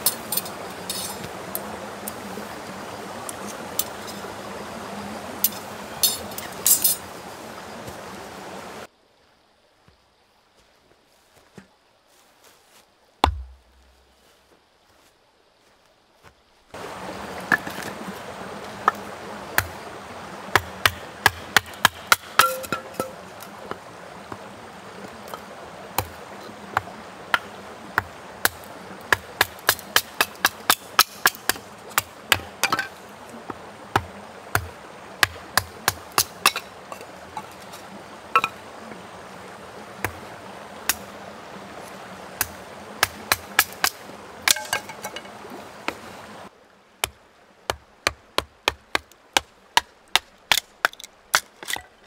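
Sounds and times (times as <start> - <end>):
stream rushing: 0.0 - 52.0
hatchet knocking into wood: 13.2 - 13.6.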